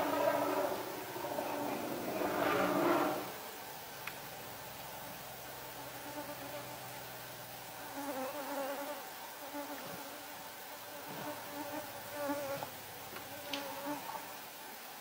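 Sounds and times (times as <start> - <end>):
insect buzzing: 0.0 - 14.6.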